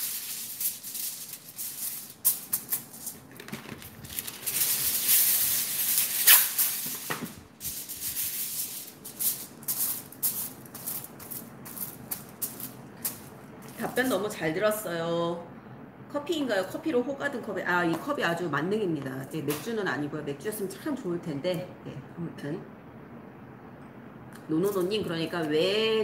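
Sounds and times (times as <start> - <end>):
foil crackling under hands: 0.0 - 13.2
kitchen foil crinkling: 0.0 - 14.3.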